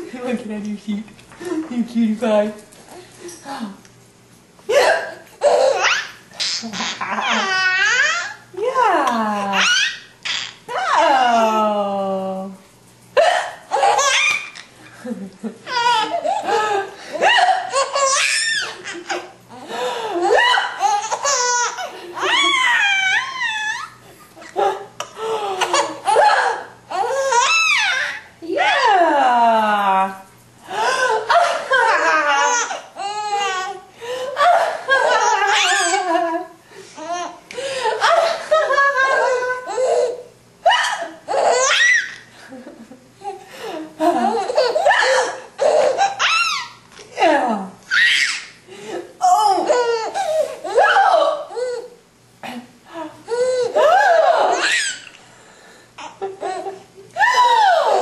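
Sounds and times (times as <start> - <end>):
baby laughing: 4.7 - 8.4, 9.6 - 10.6, 13.7 - 14.7, 15.6 - 24.8, 25.5 - 28.2, 31.3 - 33.8, 34.4 - 36.3, 38.0 - 42.3, 44.2 - 46.8, 49.4 - 50.9, 53.3 - 55.2, 56.0 - 56.8.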